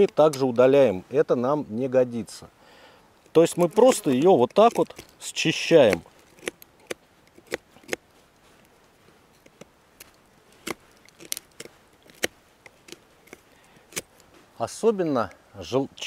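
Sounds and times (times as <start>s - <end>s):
knife scraping crust: 3.4s - 8.8s, 9.4s - 14.3s.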